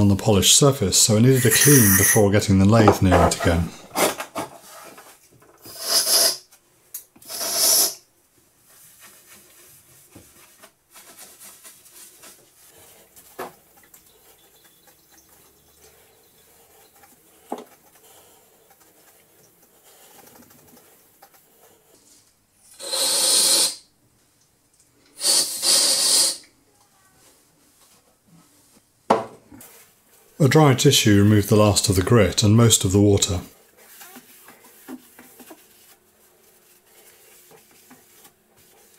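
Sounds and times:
sponge rubbing on wet stone: 33.3 - 38.9.

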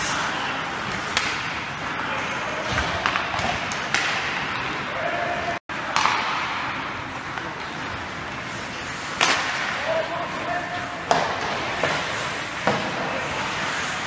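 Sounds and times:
arena noise: 0.0 - 14.0
players' voices: 0.0 - 14.0
skates on ice: 0.0 - 14.0
stick hitting puck: 0.9 - 1.5, 2.7 - 4.4, 5.8 - 6.7, 9.2 - 9.8, 11.0 - 13.1.

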